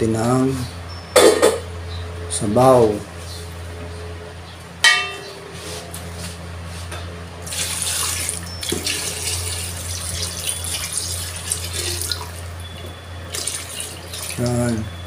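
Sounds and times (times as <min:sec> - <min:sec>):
broth pouring and splashing: 0:07.4 - 0:12.5, 0:13.2 - 0:14.6.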